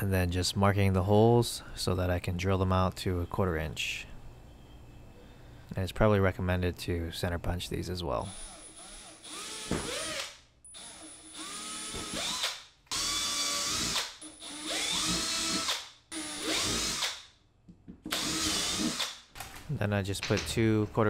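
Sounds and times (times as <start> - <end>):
cordless drill whining: 18.1 - 19.1.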